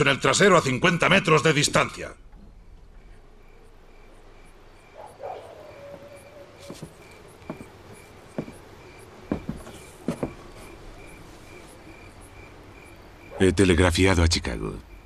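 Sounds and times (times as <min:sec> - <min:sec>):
crickets chirping: 0:00.0 - 0:15.0
sharp knocks: 0:05.9 - 0:08.6, 0:09.2 - 0:10.4.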